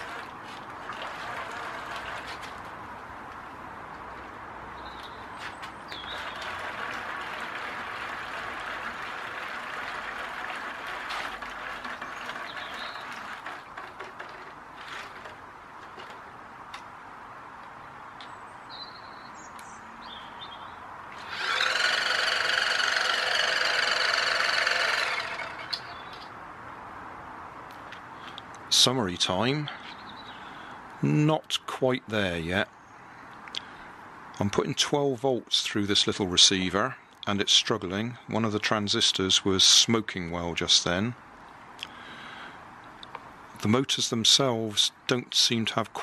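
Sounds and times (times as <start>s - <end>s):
toy boat motors whirring: 0.0s - 2.6s, 6.0s - 15.4s, 21.1s - 26.2s
wheels churning water: 0.0s - 2.8s, 5.9s - 16.1s, 21.2s - 26.0s.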